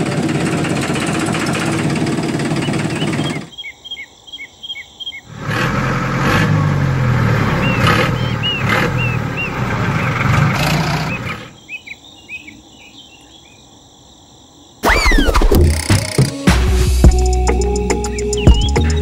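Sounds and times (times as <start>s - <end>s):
birds chirping: 0.0s - 5.4s, 7.1s - 13.9s, 17.1s - 19.0s.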